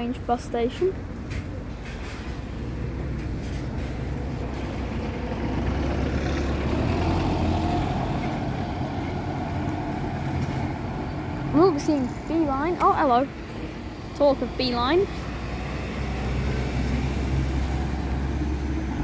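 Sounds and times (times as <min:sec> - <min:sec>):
bus engine rumbling: 0:00.0 - 0:19.0.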